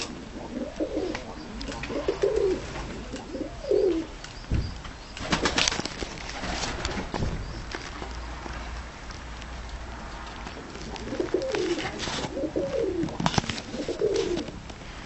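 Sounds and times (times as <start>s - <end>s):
pigeons cooing: 0.0s - 4.6s, 10.6s - 14.6s.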